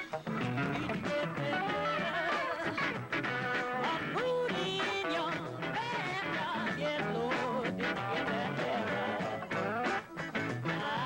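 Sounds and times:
acoustic guitar playing: 0:00.0 - 0:11.0
live band music: 0:00.0 - 0:11.0.

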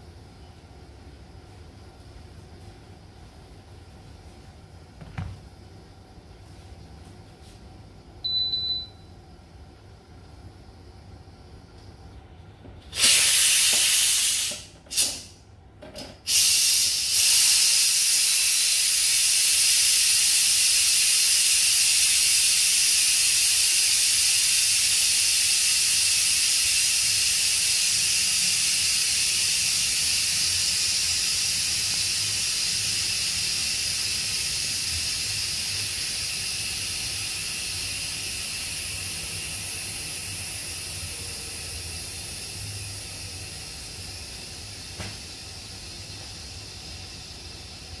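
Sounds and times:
pressure cooker steam hissing: 0:12.9 - 0:15.4, 0:16.2 - 0:48.0.

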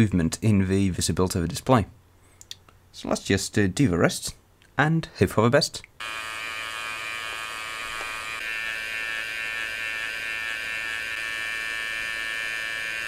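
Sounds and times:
hot air gun fan whine: 0:06.0 - 0:13.0.

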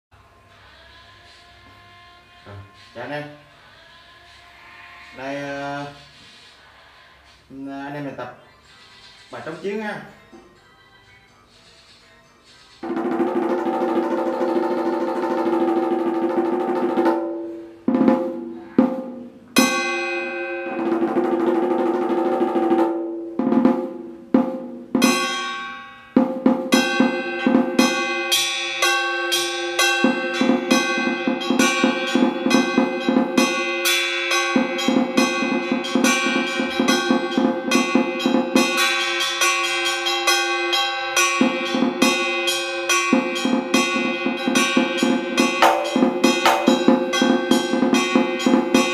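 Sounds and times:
drum played with sticks: 0:12.8 - 0:48.9.

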